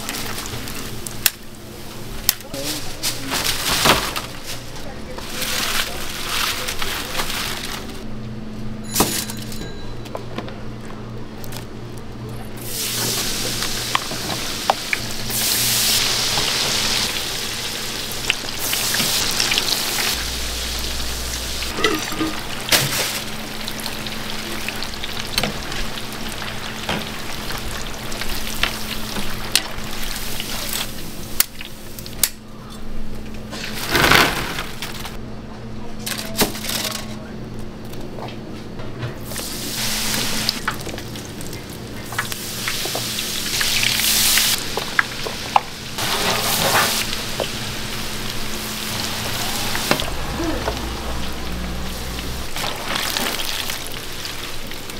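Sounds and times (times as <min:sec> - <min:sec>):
wire basket clinking on racks: 0:08.8 - 0:10.3
food sizzling in hot oil: 0:12.6 - 0:31.7, 0:39.2 - 0:54.9.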